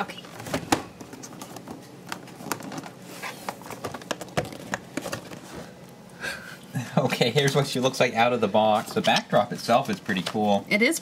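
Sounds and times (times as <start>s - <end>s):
packaging clicks and rustles: 0.5s - 5.6s.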